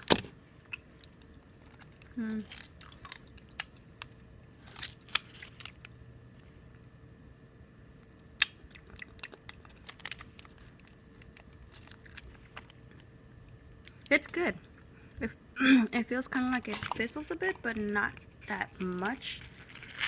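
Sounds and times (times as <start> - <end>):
chewing candy: 0.6 - 4.2, 8.4 - 13.1
plastic wrapper crinkling: 4.6 - 6.0, 9.2 - 13.1, 16.6 - 20.0.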